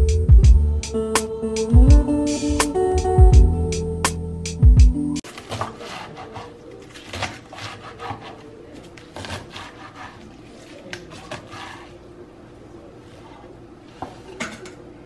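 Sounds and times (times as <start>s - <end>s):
knife chopping on wooden board: 5.4s - 6.5s
knife scraping board: 5.4s - 8.5s, 9.1s - 12.0s.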